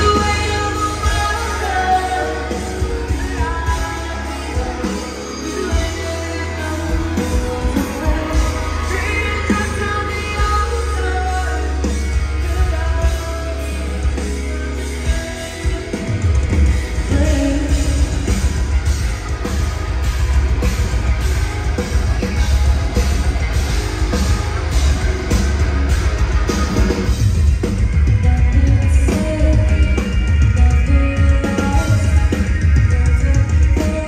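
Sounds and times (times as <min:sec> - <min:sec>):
woman singing: 0:00.0 - 0:16.0, 0:16.9 - 0:18.8, 0:28.2 - 0:34.0
heavy metal band playing live: 0:00.0 - 0:34.0.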